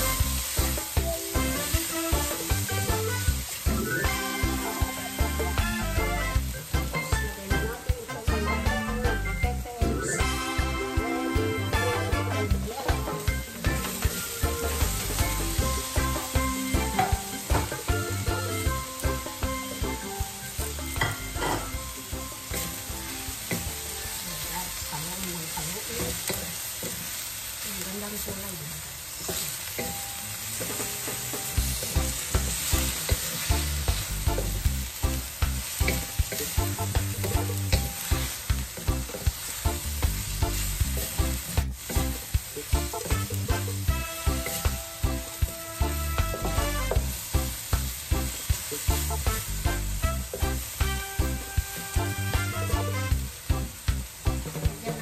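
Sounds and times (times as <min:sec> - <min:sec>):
food sizzling in a wok: 0:00.0 - 0:55.0
wooden spatula stirring: 0:29.2 - 0:53.3.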